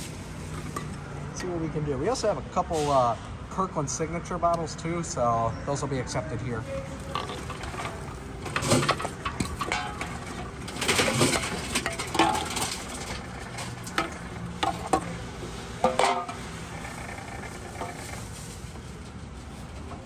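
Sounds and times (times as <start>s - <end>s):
cans clattering and knocking: 6.9s - 18.4s.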